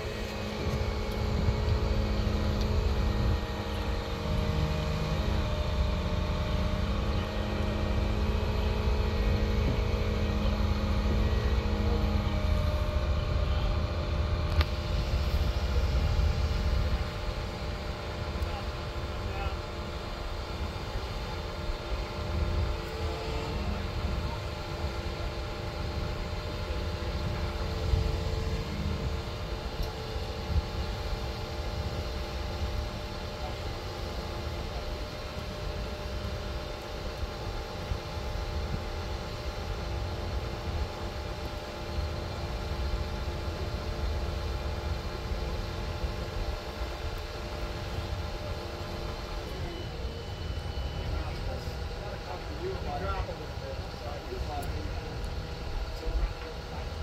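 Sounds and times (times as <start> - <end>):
wheel loader diesel engine humming: 0.0 - 57.0.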